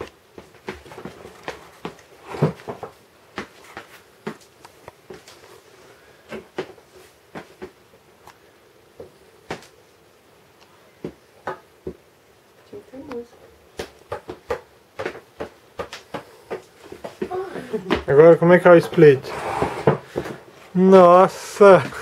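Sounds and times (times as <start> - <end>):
soft footsteps on wooden floor: 13.8 - 20.7.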